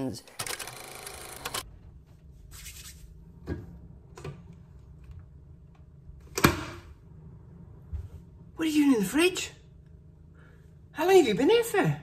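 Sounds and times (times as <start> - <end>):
low steady hum: 1.6 - 12.0.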